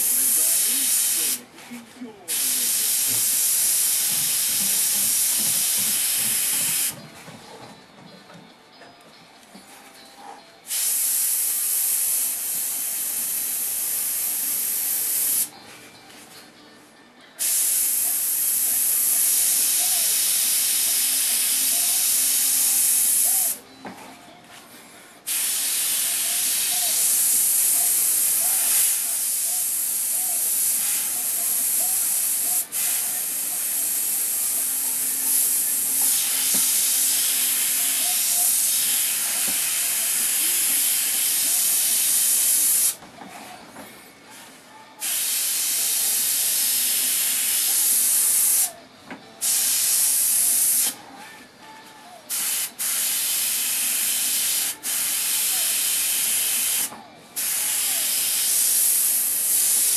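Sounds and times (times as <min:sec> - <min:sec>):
airbrush spraying hiss: 0:00.0 - 0:01.4, 0:02.3 - 0:07.0, 0:10.7 - 0:15.5, 0:17.4 - 0:23.6, 0:25.3 - 0:43.0, 0:45.0 - 0:48.8, 0:49.4 - 0:51.0, 0:52.3 - 0:59.9.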